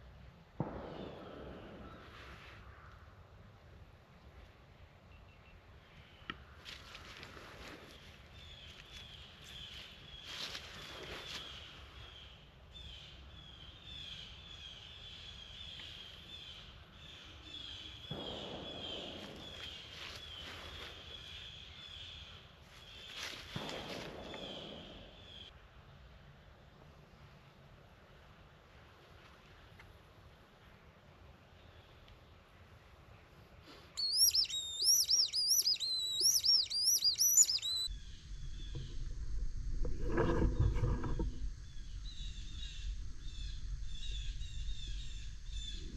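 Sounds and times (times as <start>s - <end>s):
squirrel barking: 34.0s - 37.9s
high swooping squeals: 34.0s - 38.6s.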